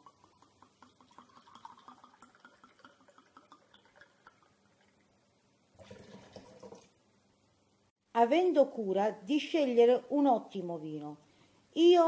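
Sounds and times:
wine glugging into a glass: 0.0s - 5.0s, 5.8s - 7.0s
wine splashing into syrup: 5.8s - 7.0s.

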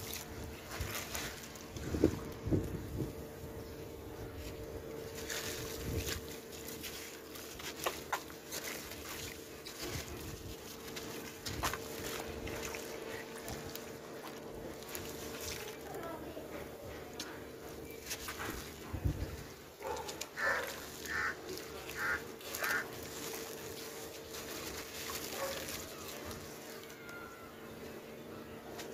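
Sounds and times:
gritty crunching of crumbling cement: 17.7s - 26.7s.

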